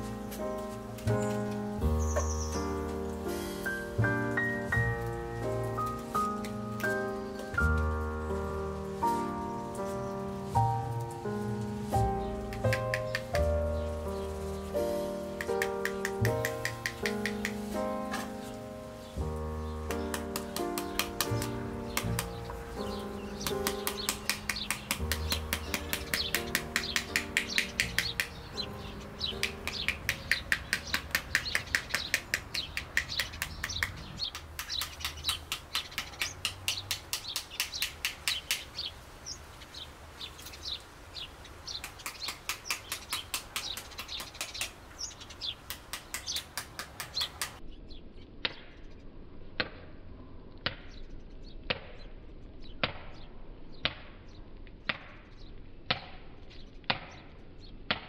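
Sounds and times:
birds chirping: 0.0 - 48.0
wooden spoon tapping fruit: 15.4 - 17.8, 23.4 - 28.4, 29.4 - 38.6.

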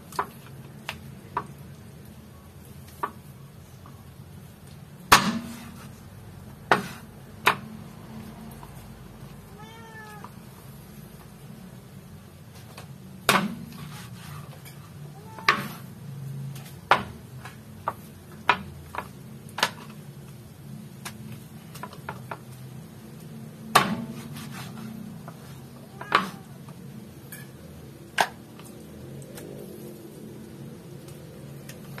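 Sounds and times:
knife chopping on wooden board: 6.7 - 7.7, 13.3 - 14.3, 23.7 - 25.5.

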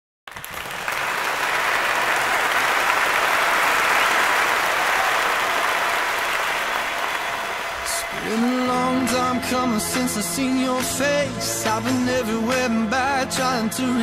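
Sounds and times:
guests applauding: 0.3 - 8.9.

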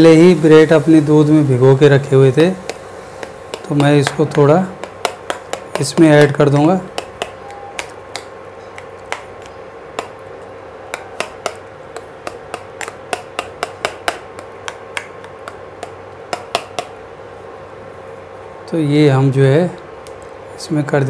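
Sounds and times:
steady hum: 0.0 - 21.0
wooden spatula knocking on pan: 2.6 - 10.2, 10.9 - 17.0.

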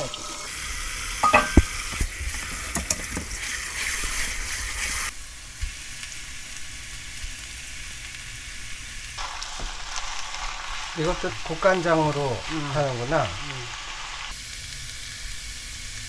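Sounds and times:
tap water running into colander: 0.0 - 5.1
metal knock: 1.2 - 1.7.

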